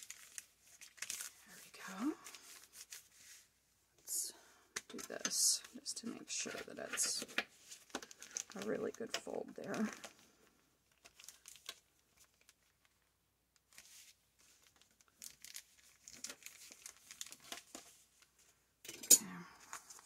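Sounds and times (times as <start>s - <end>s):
paper handling: 13.6s - 18.1s.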